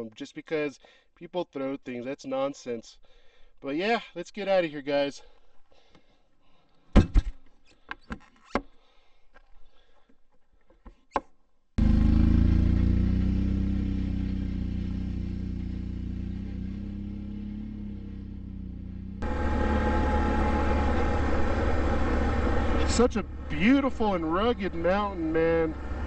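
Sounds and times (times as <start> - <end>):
quad engine running: 11.8 - 26.0.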